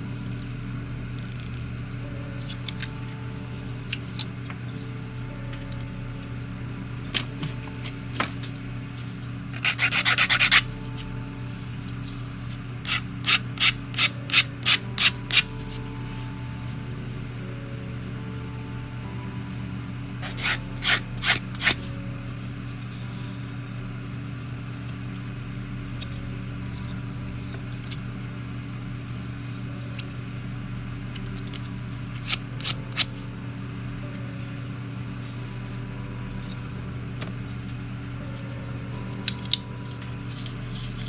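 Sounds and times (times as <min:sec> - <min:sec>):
steady low hum: 0:00.0 - 0:41.0
sanding stick rubbing plastic: 0:09.6 - 0:10.6.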